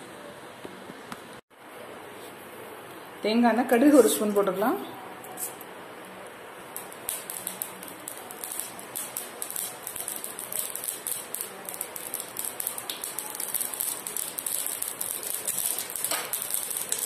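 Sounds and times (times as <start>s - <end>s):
oil sizzling: 5.4s - 17.0s
seeds popping in hot oil: 6.3s - 17.0s.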